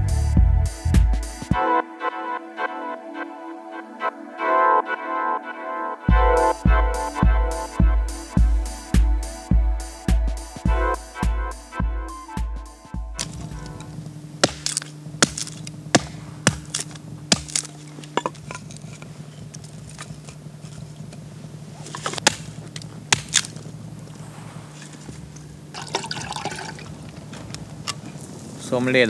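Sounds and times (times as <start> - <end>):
campfire crackling and popping: 13.2 - 24.2.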